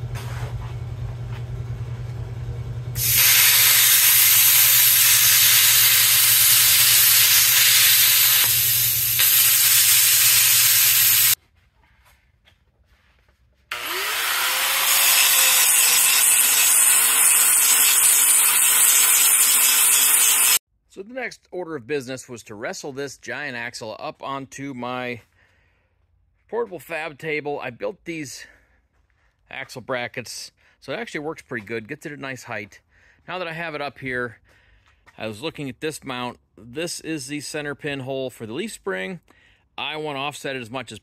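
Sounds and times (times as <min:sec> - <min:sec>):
angle grinder grinding steel: 0:03.0 - 0:11.4, 0:13.7 - 0:20.6
plasma cutter hissing: 0:03.0 - 0:11.4, 0:14.8 - 0:20.6.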